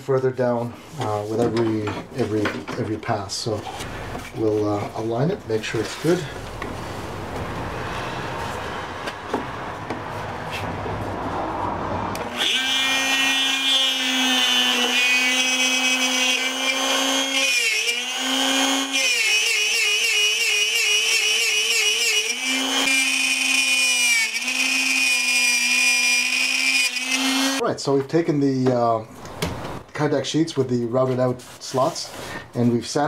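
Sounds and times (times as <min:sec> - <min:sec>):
router motor whine: 0:12.2 - 0:27.6.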